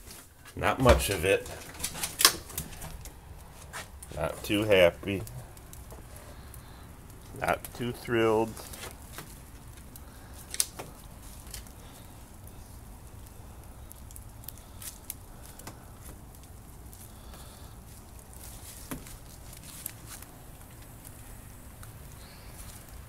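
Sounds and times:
dog paws rustling through leaves: 18.0 - 20.9.

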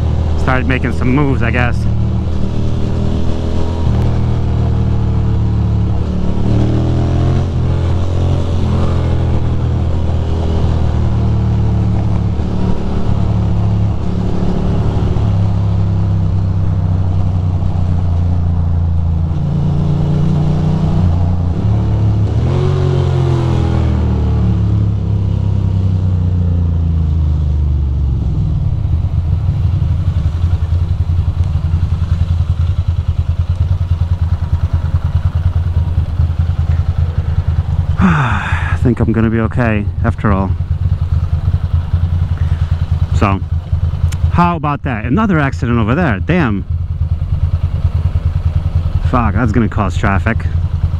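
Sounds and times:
motorcycle engine accelerating: 0.0 - 50.9
motorcycle engine idling: 26.1 - 44.5, 45.8 - 50.9.

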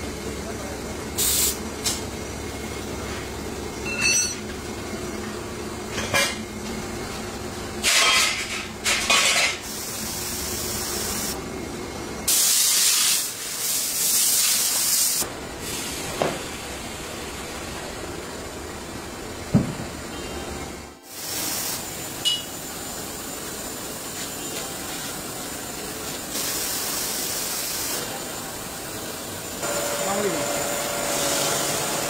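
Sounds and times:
workshop machinery hum: 0.0 - 32.0
compressed air hissing: 1.2 - 1.6, 9.6 - 11.4, 12.3 - 16.2, 21.1 - 22.3, 25.0 - 28.1.

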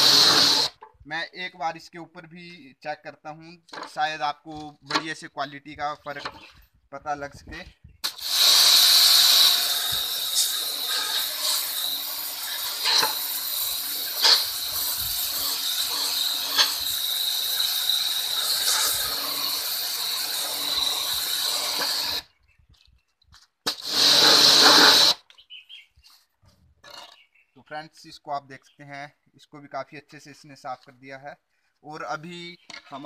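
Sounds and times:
pressure washer spraying on stone: 0.0 - 0.8, 8.0 - 22.3, 23.7 - 25.2.

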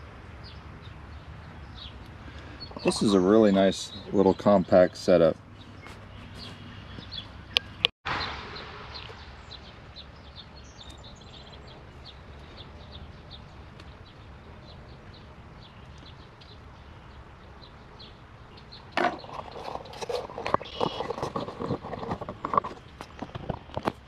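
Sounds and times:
low outdoor background noise: 0.0 - 24.0
small birds chirping: 0.4 - 24.0.

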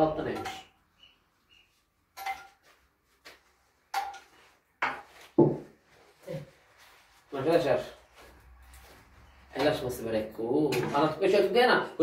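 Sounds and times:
metal spoon clinking against bowl: 0.3 - 0.7.

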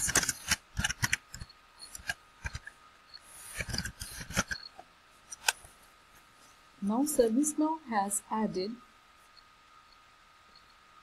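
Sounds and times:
keyboard typing clicks: 0.0 - 2.7.

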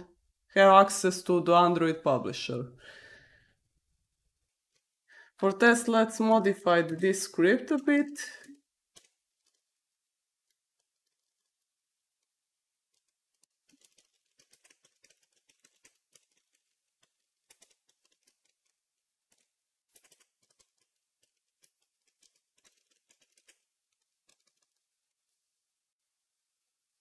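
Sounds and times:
soft keyboard typing: 8.4 - 9.7, 10.4 - 11.7, 12.9 - 24.9.

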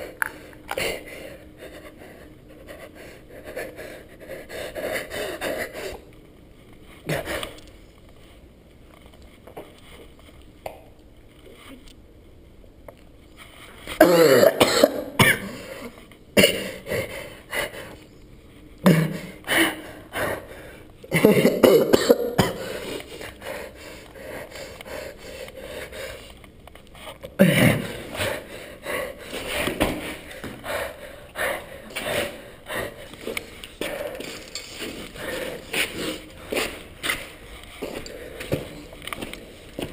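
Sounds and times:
man coughing: 14.0 - 15.8, 16.4 - 16.9, 18.8 - 19.4, 21.1 - 22.9, 27.4 - 28.1
throat clearing: 18.8 - 19.3, 27.4 - 28.1.

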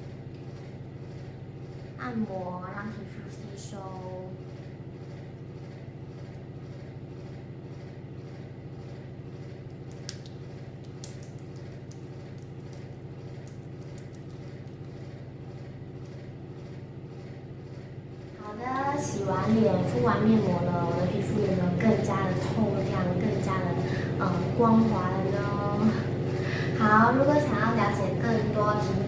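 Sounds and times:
steady low hum: 0.0 - 29.0
fingertips clicking on wet skin: 9.7 - 15.1.

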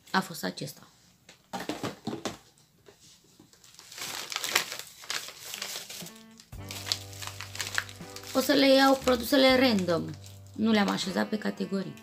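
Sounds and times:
plastic packaging rustling: 3.3 - 11.1.

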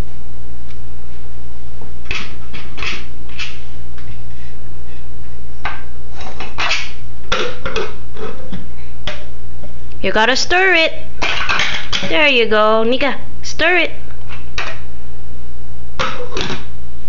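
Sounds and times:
steady low hum: 0.0 - 17.0
plastic cups clattering on floor: 5.6 - 9.3, 11.2 - 12.2, 16.0 - 16.7.

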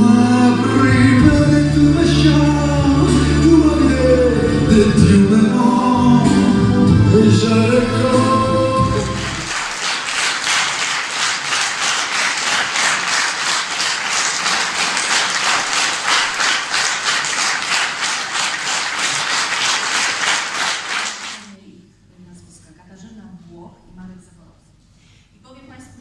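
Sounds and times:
music: 0.0 - 9.6
audience applauding: 8.1 - 21.5.

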